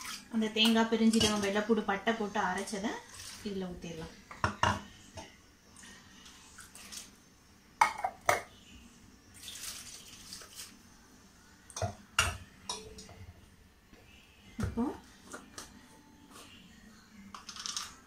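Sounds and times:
water pouring into jar: 0:03.0 - 0:03.5, 0:09.4 - 0:10.7
steel utensils clinking: 0:12.7 - 0:13.1.

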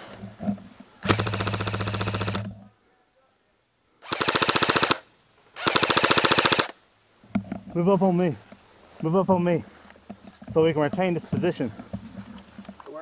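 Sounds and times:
airsoft rifle firing bursts: 0:01.0 - 0:02.5, 0:04.0 - 0:05.0, 0:05.6 - 0:06.8.

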